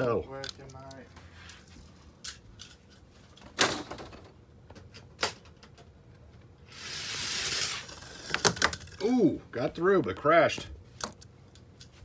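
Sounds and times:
toy car rolling on plastic track: 6.7 - 9.0.

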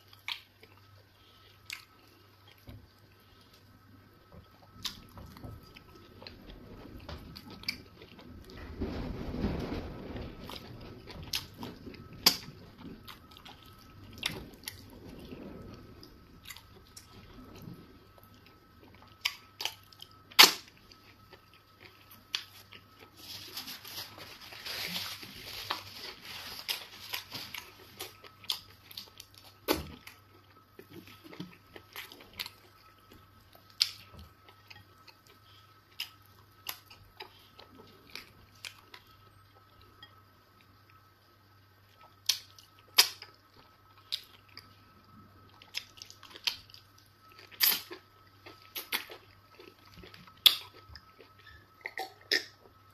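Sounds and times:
close chewing and lip smacks: 0.0 - 3.6
paper tissue rustling: 22.5 - 28.2.

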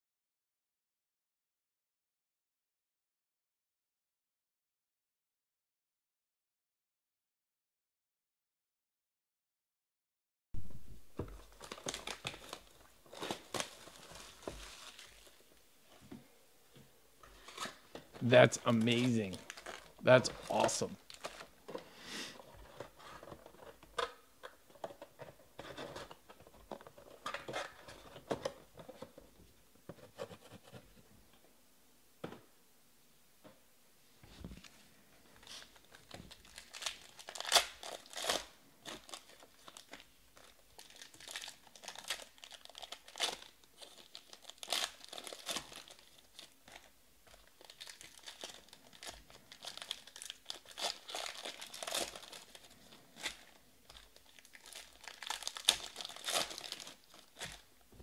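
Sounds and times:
foil packs tearing and crinkling: 11.4 - 15.4, 18.7 - 21.5, 35.4 - 57.7.

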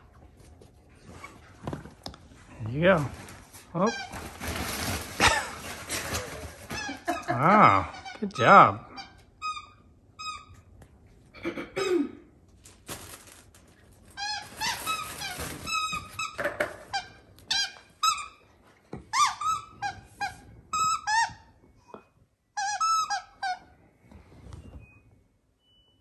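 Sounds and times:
rustling: 0.0 - 7.1, 12.6 - 16.4
squeaky toy squeaks: 3.8 - 4.3, 7.9 - 10.7, 14.2 - 18.4, 19.1 - 21.6, 22.5 - 23.7.

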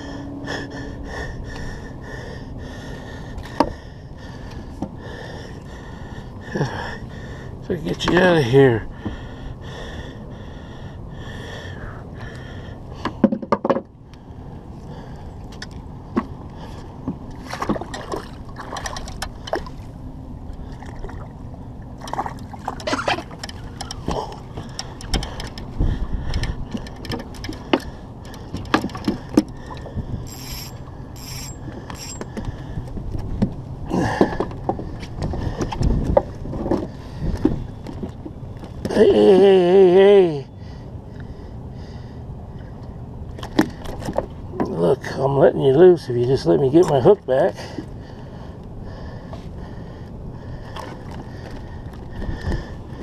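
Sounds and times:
steady low rumble: 0.0 - 13.2, 13.9 - 38.9
knocks and clicks on boat: 3.4 - 3.8, 13.0 - 13.9, 17.0 - 19.8, 22.0 - 33.6, 34.2 - 39.0, 43.3 - 44.8
water splashing: 17.4 - 20.0.

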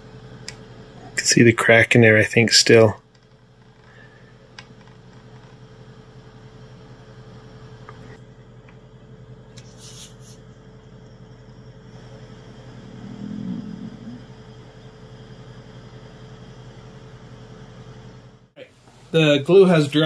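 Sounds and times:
low background hum: 0.0 - 20.0
low rumble: 12.3 - 15.1.

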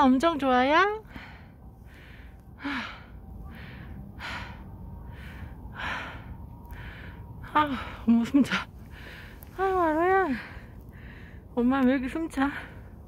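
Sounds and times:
person breathing hard: 1.0 - 8.1, 8.8 - 9.6, 10.3 - 11.6.

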